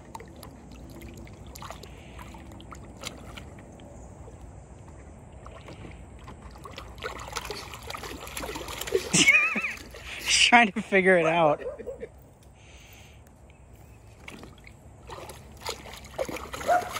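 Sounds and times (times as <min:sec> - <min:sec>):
dog pawing and splashing: 0:00.0 - 0:10.3, 0:14.1 - 0:16.9
water sloshing in a pool: 0:00.0 - 0:11.9, 0:13.6 - 0:16.9.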